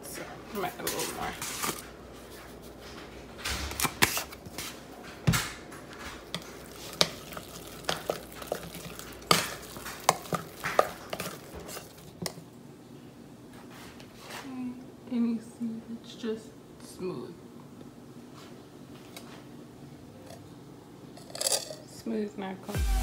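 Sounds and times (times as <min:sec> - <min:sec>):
spoon scraping mashed potatoes: 0:00.8 - 0:02.8, 0:03.8 - 0:04.8, 0:05.9 - 0:12.4
spoon knocking metal pot: 0:06.3 - 0:12.4.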